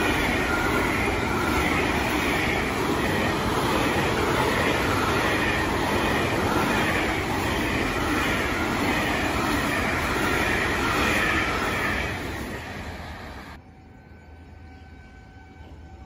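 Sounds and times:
train wheels on rail: 0:00.0 - 0:13.6.

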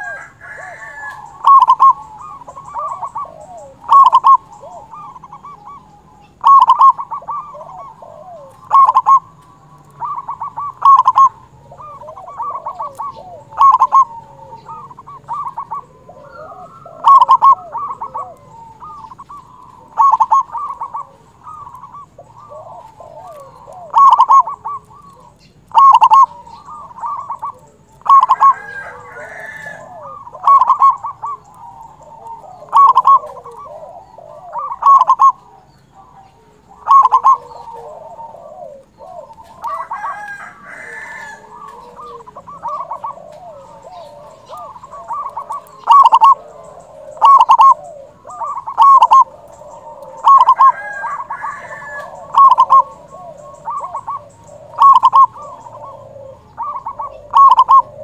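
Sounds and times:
dove cooing: 0:00.0 - 0:58.0
soft bird calls: 0:00.0 - 0:58.0.

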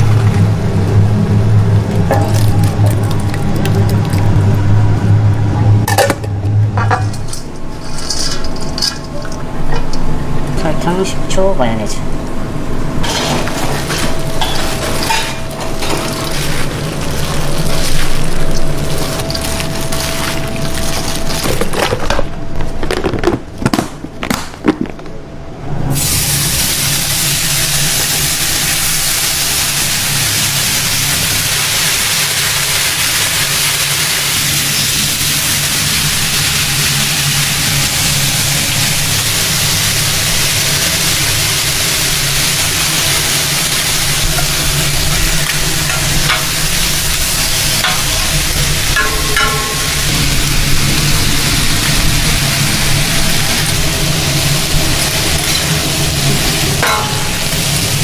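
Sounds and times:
bacon sizzling on a griddle: 0:26.0 - 0:58.0.

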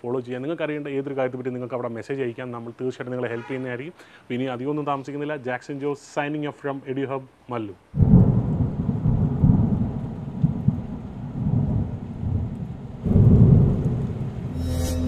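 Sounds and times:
rolling thunder: 0:08.0 - 0:14.6
steady rain: 0:08.0 - 0:14.6.

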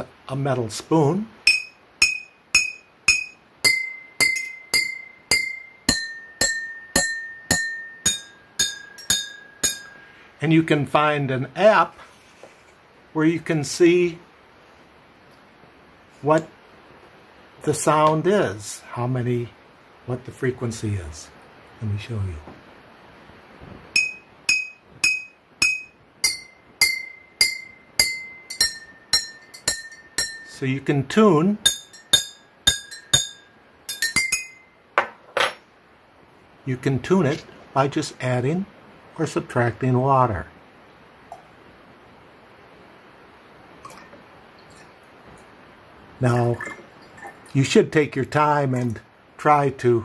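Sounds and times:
spoon tapping glass bottles: 0:01.5 - 0:10.0, 0:23.9 - 0:30.5, 0:31.7 - 0:35.5.

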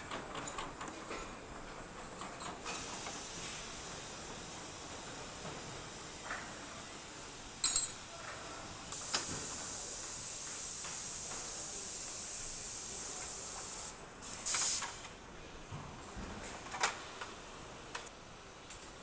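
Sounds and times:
steady air hiss: 0:02.6 - 0:15.3
compressed air blast: 0:08.9 - 0:15.0.

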